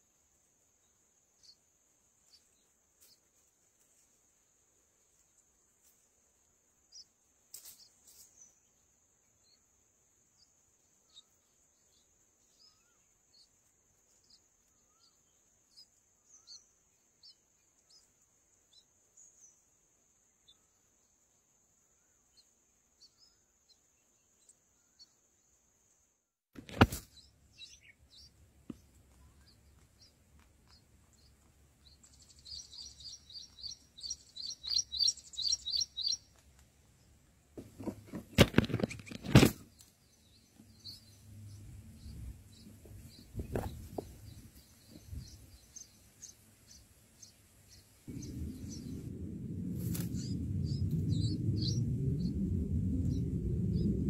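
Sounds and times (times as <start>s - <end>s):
birds chirping: 6.8s - 25.6s, 26.7s - 54.0s
low rumble: 48.1s - 54.0s.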